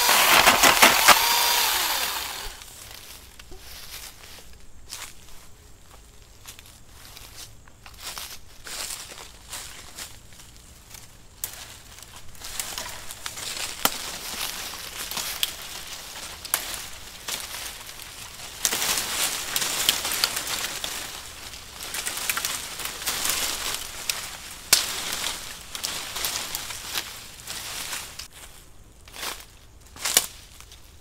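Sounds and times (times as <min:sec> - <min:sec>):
twigs snapping: 0:00.0 - 0:02.6, 0:12.6 - 0:14.4, 0:15.0 - 0:17.5, 0:18.6 - 0:27.1
leaves and twigs rustling: 0:00.0 - 0:31.0.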